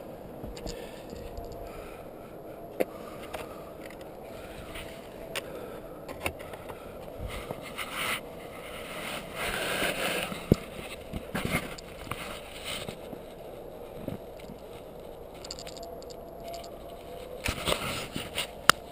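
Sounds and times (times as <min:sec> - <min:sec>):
handling noise rustles and scrapes: 0:00.5 - 0:01.7, 0:06.1 - 0:18.9.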